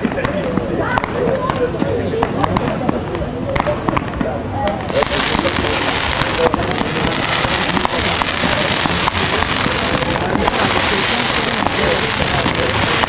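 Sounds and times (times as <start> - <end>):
fireworks crackling fizz: 0.0 - 13.0
sharp fireworks cracks: 0.0 - 13.0.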